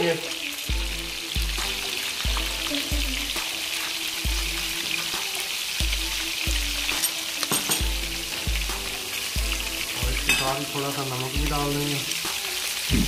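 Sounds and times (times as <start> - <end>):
food frying in hot oil: 0.0 - 13.0
music with deep bass beat: 0.7 - 3.5, 7.8 - 10.3, 11.4 - 13.0.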